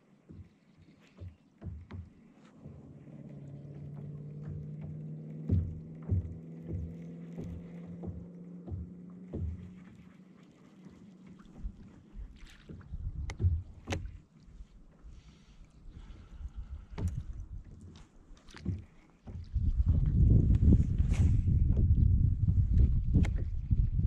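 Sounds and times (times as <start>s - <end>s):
waves slapping kayak hull: 0.0s - 24.0s
steady low hum: 1.8s - 10.6s.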